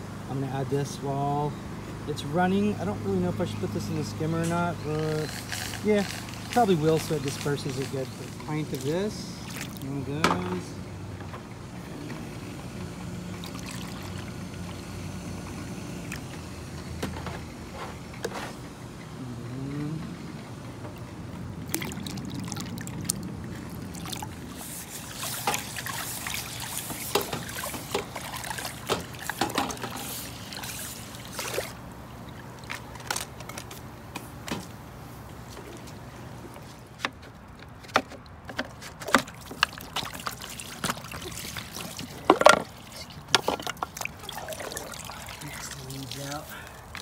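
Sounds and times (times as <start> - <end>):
low steady hum: 0.0 - 47.0
pool water sloshing: 1.7 - 18.8, 19.9 - 47.0
splashes and clicks: 7.3 - 9.9, 21.6 - 33.8, 37.8 - 47.0.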